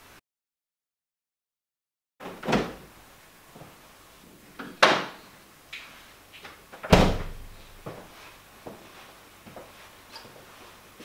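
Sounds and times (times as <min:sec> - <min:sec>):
kitchen doors knocking shut: 0:06.8 - 0:07.5
refrigerator door closing thud: 0:06.9 - 0:07.5.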